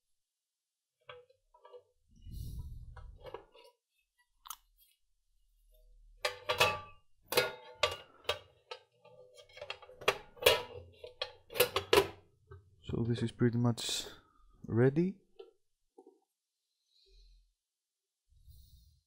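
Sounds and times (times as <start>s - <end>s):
metallic knocks and clanks: 6.2s - 12.6s.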